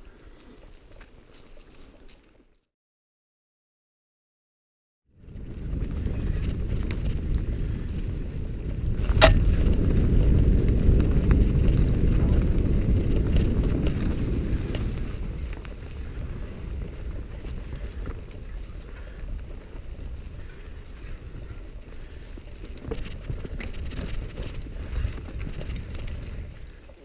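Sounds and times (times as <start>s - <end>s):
wind buffeting microphone: 5.1s - 27.0s
tyres rumbling over trail: 5.2s - 27.0s.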